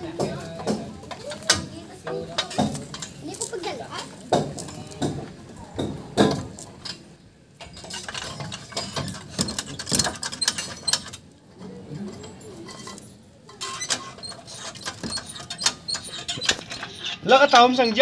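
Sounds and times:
floor jack metal clicks and rattles: 7.6 - 11.2.

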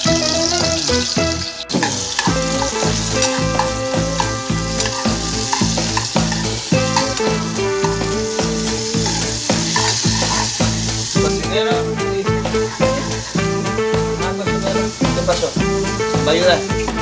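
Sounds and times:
background music with steady beat: 0.0 - 17.0
rice and vegetables sizzling in oil: 0.0 - 17.0
spoon stirring in saucepan: 1.8 - 11.2.

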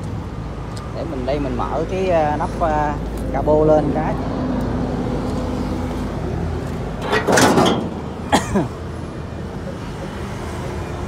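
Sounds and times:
hood scraping rattle: 6.6 - 8.3.

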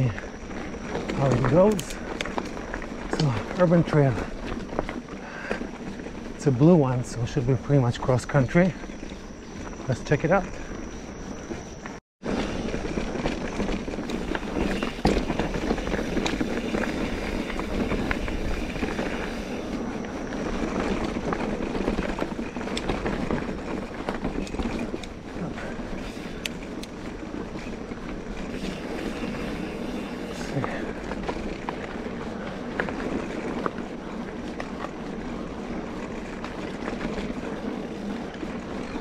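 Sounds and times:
bike tyre noise on dirt: 0.0 - 39.0
bike clicks and knocks: 0.1 - 6.0, 12.4 - 35.3
wind buffeting microphone: 12.4 - 39.0.

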